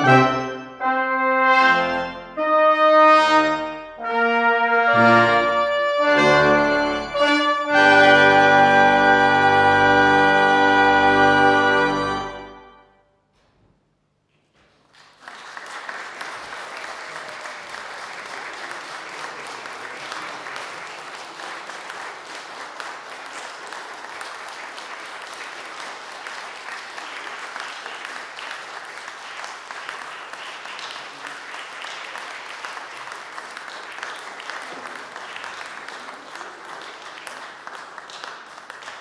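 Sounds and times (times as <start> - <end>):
brass and organ chord: 0.0 - 13.1
audience applause: 14.8 - 39.0.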